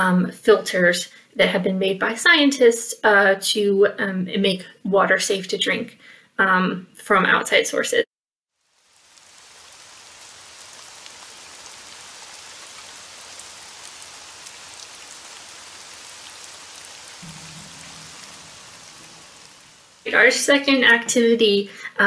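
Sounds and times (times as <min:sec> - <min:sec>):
rain hissing: 0:08.5 - 0:22.0
faint low tones: 0:17.2 - 0:20.5.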